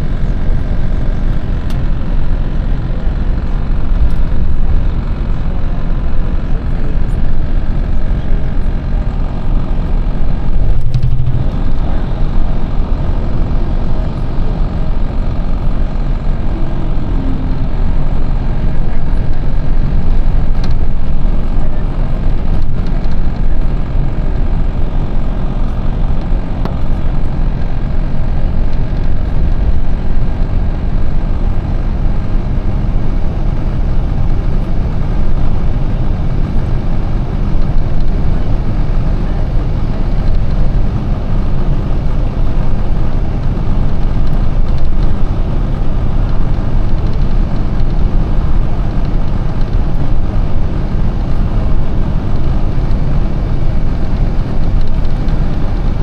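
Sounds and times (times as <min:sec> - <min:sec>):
bus engine and road noise: 0:00.0 - 0:56.0.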